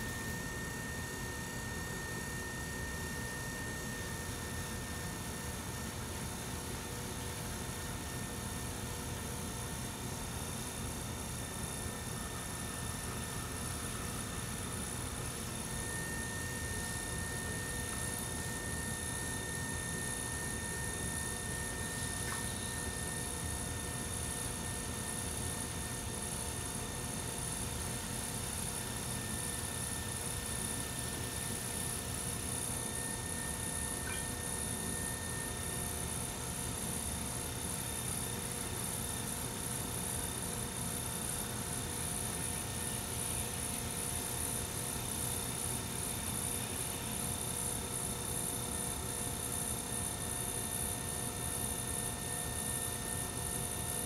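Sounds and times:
potter's wheel motor hum: 0.0s - 54.0s
faint high whines: 12.4s - 26.2s, 28.8s - 37.3s.

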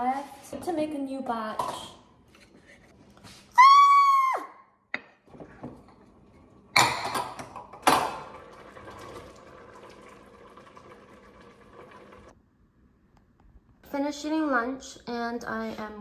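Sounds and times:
soup simmering and bubbling: 5.2s - 12.4s.

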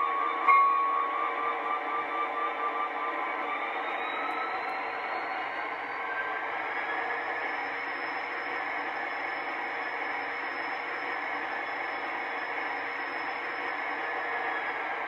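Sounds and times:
diesel locomotive engine rumble: 0.0s - 15.0s.

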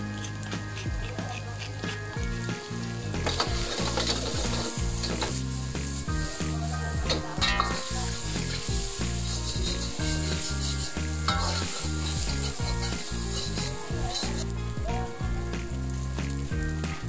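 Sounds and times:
meat and onions sizzling in wok: 0.0s - 17.0s
rhythmic background music: 0.0s - 17.0s
metal spatula scraping pan: 7.1s - 14.4s.

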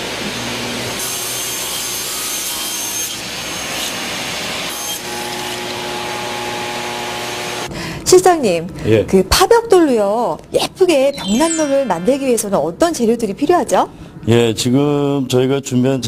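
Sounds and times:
table saw cutting wood: 0.0s - 7.7s.

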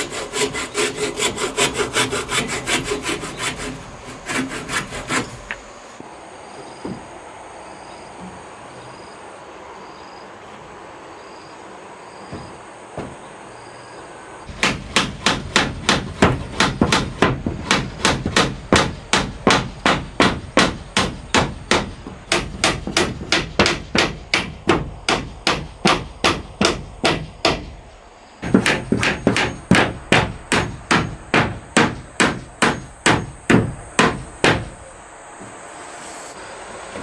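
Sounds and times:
hammer nailing wooden planks: 12.3s - 13.2s, 14.5s - 27.8s, 28.4s - 34.8s.

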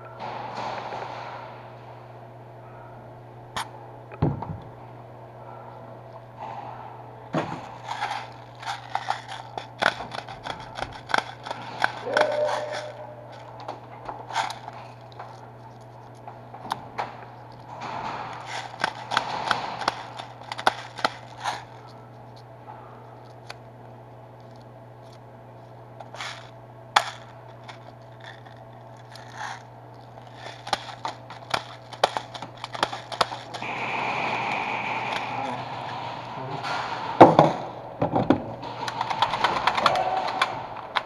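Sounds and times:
low hum: 0.0s - 41.0s
gear clicking and rustling: 7.4s - 22.5s, 24.4s - 33.7s.

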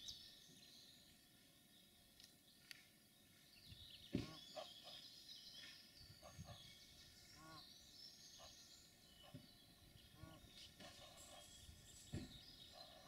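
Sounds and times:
goslings peeping: 8.4s - 11.8s
short low goose calls: 10.1s - 11.5s
low thump: 12.1s - 12.4s.

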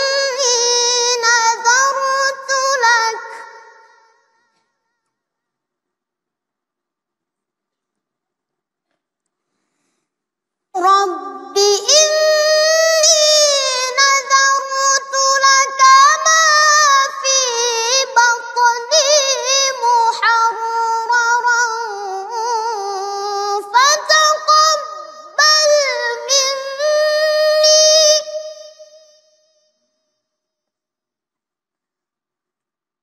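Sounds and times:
boy chanting recitation: 0.0s - 4.6s, 10.7s - 29.4s.

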